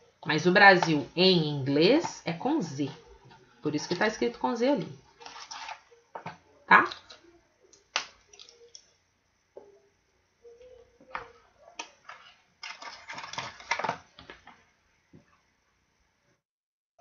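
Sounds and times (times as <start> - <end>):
rustling: 5.0 - 6.4, 11.1 - 14.6.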